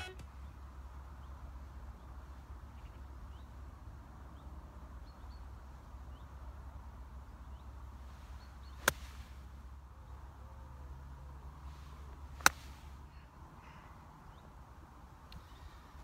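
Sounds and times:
low outdoor background noise: 0.0s - 16.0s
golf club striking ball: 8.8s - 9.1s.

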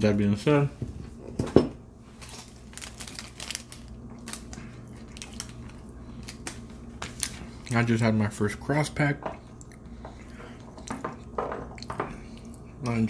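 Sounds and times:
tin box crinkling and crackling: 2.2s - 7.9s.

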